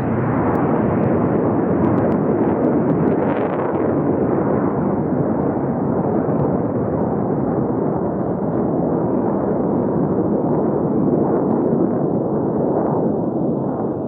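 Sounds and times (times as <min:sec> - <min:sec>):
jet engine rumble: 0:00.0 - 0:14.0.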